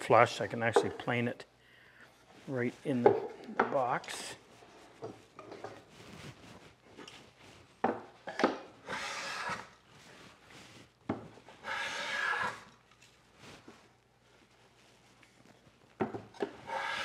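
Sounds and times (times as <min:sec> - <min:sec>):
hand plane shaving wood: 0:08.8 - 0:09.8, 0:11.6 - 0:12.7, 0:16.4 - 0:17.0.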